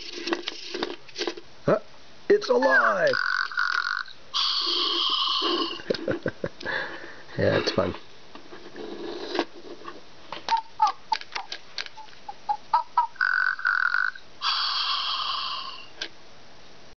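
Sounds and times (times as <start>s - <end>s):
toy monkey chirps: 2.8s - 5.8s, 10.5s - 15.9s
electronic held tone: 4.4s - 5.8s.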